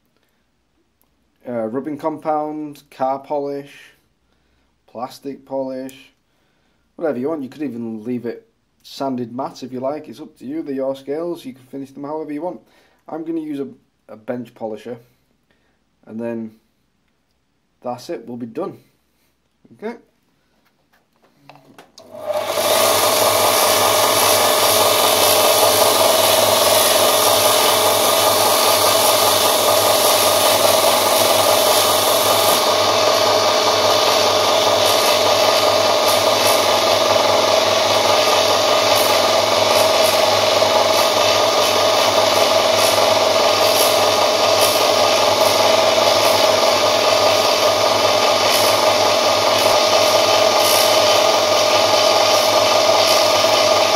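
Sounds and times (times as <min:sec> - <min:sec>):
bench polisher motor whirring: 0:22.0 - 0:53.9.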